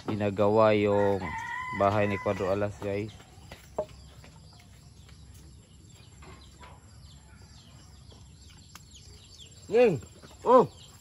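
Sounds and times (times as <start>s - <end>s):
small bird chirps: 2.9s - 11.0s.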